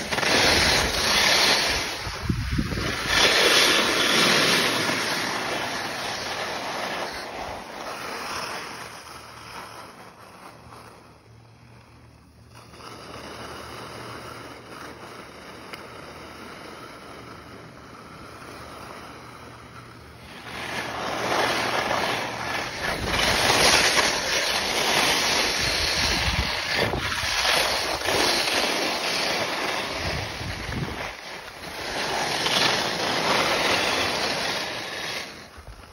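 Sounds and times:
wind on microphone: 0.0s - 4.2s, 25.2s - 28.2s, 29.9s - 31.2s
skis scraping on snow: 0.0s - 35.9s.

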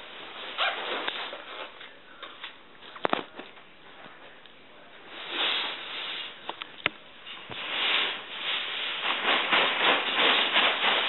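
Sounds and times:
tent fabric rustling: 0.2s - 1.8s, 7.6s - 11.0s.

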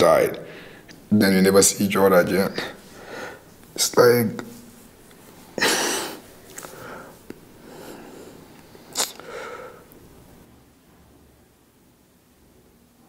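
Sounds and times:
man sniffing while crying: 5.6s - 6.9s.

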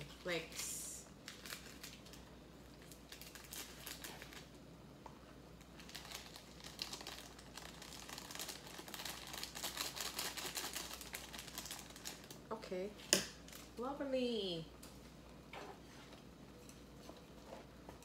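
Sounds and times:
plastic packets crinkling: 1.2s - 4.6s, 5.6s - 12.4s.

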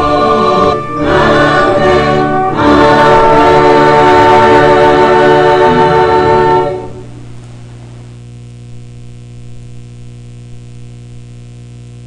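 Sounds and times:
choir singing a hymn: 0.0s - 7.1s
electrical mains hum: 0.0s - 12.0s.

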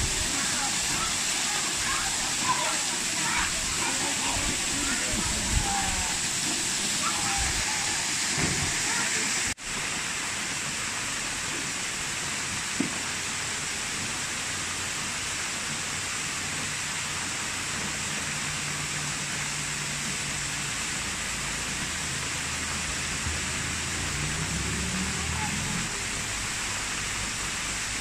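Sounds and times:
waterfall pouring into pool: 0.0s - 28.0s.

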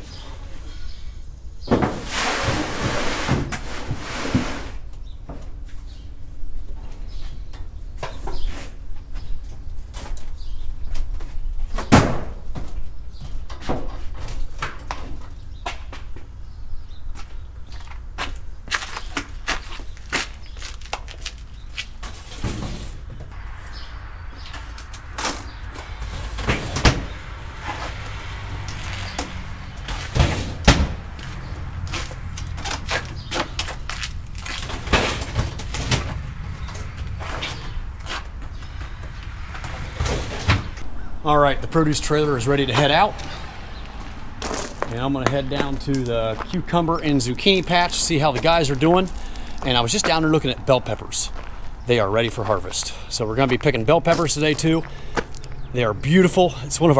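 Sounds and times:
steady low rumble: 19.9s - 56.1s
steady low hum: 21.4s - 52.0s.

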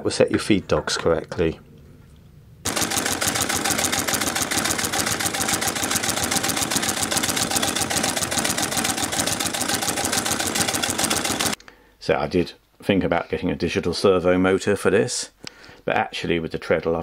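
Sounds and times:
sewing machine clatter: 2.7s - 11.6s.

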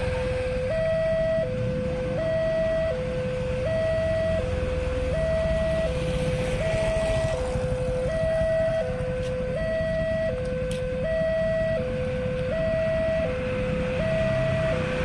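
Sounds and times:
level crossing two-tone alarm: 0.0s - 15.0s
motorcycle engines idling: 4.5s - 12.6s.

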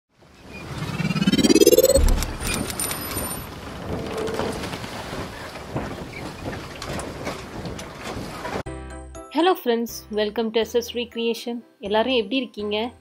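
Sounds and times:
rising pitch sweep: 0.6s - 2.8s
low boom: 0.9s - 2.7s.

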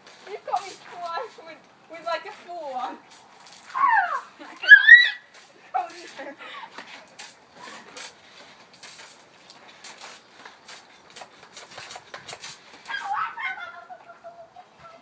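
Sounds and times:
water pistols squirting: 1.9s - 13.9s
girl squealing: 3.7s - 5.3s, 12.9s - 14.3s.

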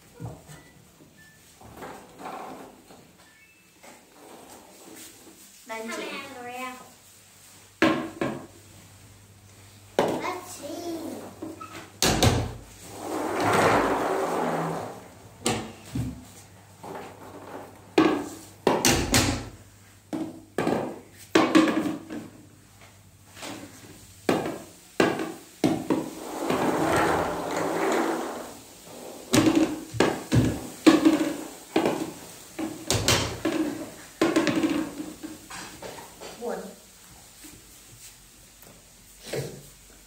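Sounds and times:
balls tumbling in wooden barrel: 11.3s - 22.4s, 23.3s - 36.3s.

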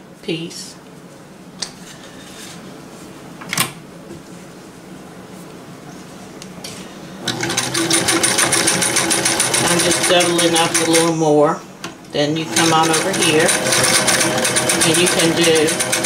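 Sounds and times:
sewing machine stitching: 7.3s - 11.1s, 12.4s - 16.0s.

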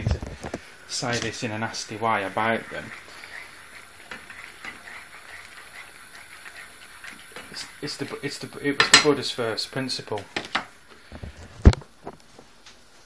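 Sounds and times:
man speaking: 7.5s - 10.3s.

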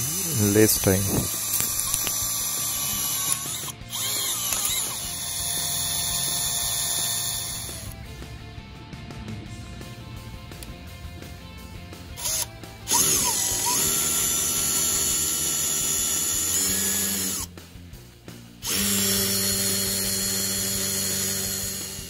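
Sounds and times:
drill boring into concrete: 0.0s - 8.0s, 12.2s - 17.5s, 18.6s - 22.0s.

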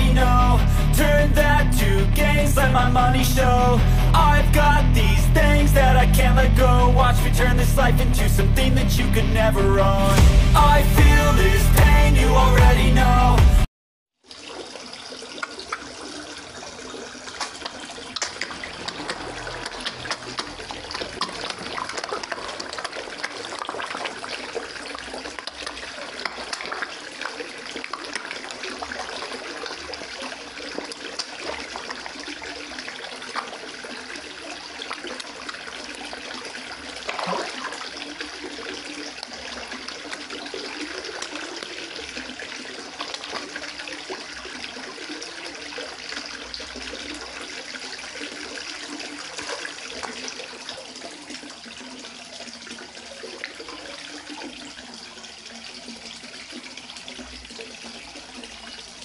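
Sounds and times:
fish splashing and slurping: 0.0s - 8.6s, 14.2s - 59.0s
water running into pond: 14.2s - 59.0s.

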